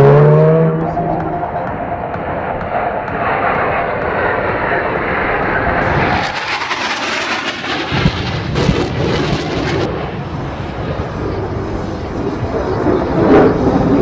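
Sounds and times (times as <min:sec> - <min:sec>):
sharp bangs: 0:00.0 - 0:10.3
jet aircraft flying over: 0:00.0 - 0:14.0.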